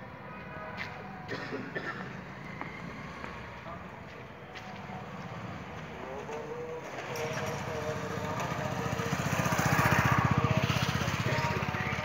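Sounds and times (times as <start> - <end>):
engine running with fast beat: 5.7 - 12.0.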